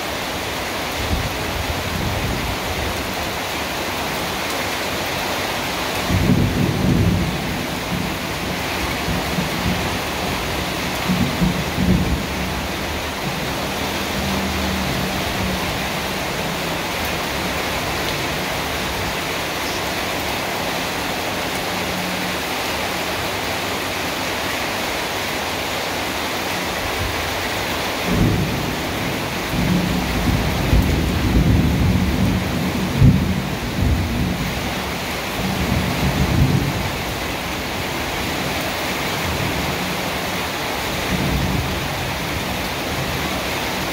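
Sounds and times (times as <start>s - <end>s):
heavy rain falling: 0.0s - 43.9s
thunder rumbling: 6.0s - 18.0s, 28.0s - 34.7s.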